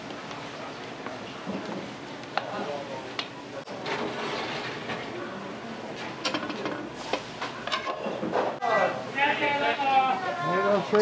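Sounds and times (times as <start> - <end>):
rushing kitchen noise: 3.6 - 10.1.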